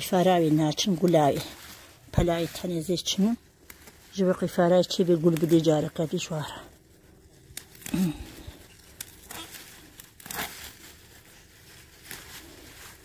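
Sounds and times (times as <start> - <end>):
leafy plants rustling and crackling: 0.0 - 13.0.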